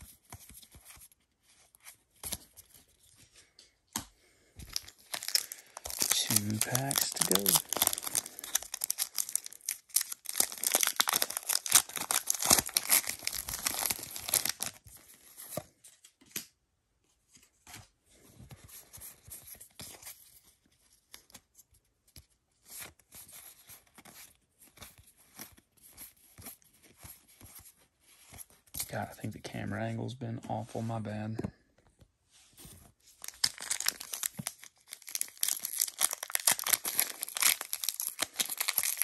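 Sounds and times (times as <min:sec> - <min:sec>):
trading cards rustling: 0:00.0 - 0:15.9, 0:32.6 - 0:39.0
foil wrapper crinkling and tearing: 0:04.6 - 0:15.0, 0:33.2 - 0:39.0.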